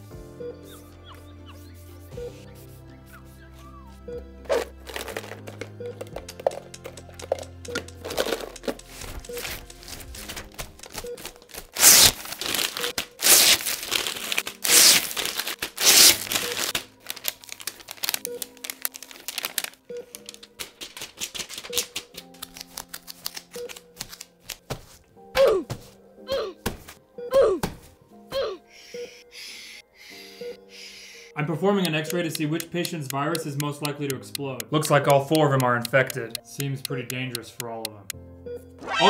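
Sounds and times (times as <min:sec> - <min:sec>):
background music with repeating note: 0:00.0 - 0:39.0
packaging crinkling and rustling: 0:04.6 - 0:06.6, 0:08.0 - 0:25.1.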